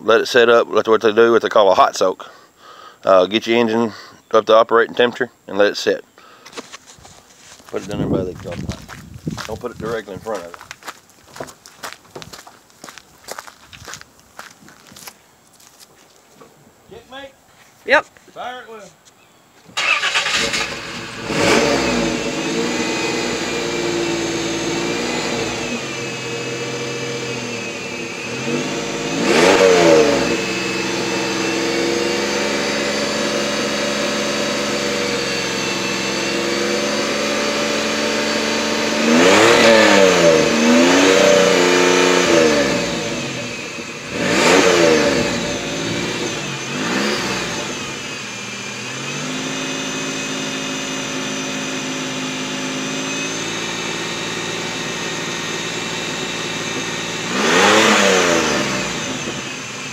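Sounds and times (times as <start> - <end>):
engine fast idle: 19.8 - 40.6, 42.2 - 59.9
car engine revving: 19.8 - 59.9.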